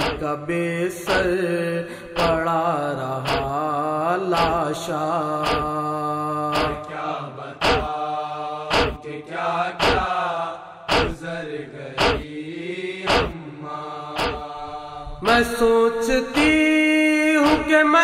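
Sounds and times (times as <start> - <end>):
chest-beating slaps: 0.0 - 0.2, 1.1 - 1.4, 2.2 - 2.4, 3.2 - 3.6, 4.4 - 4.6, 5.4 - 5.8, 6.5 - 6.8, 7.6 - 8.0, 8.7 - 9.0, 9.8 - 10.1, 10.9 - 11.2, 12.0 - 12.3, 13.1 - 13.4, 14.2 - 14.5, 17.4 - 17.7
solo voice singing a lament: 0.0 - 7.5, 13.3 - 18.0.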